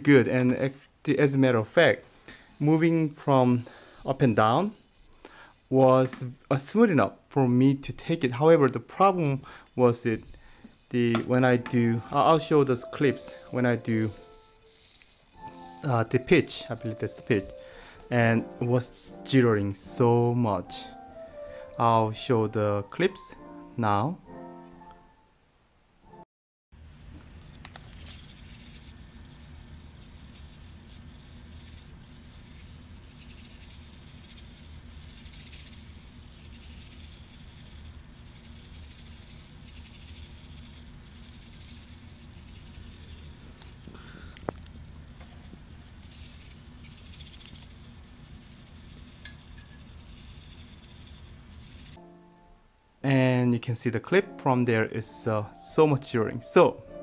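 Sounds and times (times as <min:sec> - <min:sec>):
low hum and hiss: 0:00.0 - 0:26.2, 0:26.8 - 0:57.0
rattling and scraping handling noise: 0:10.0 - 0:17.5.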